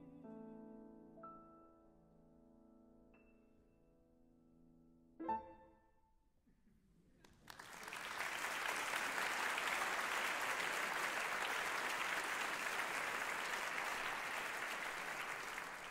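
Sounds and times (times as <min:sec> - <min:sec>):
audience applause: 0:07.3 - 0:15.9.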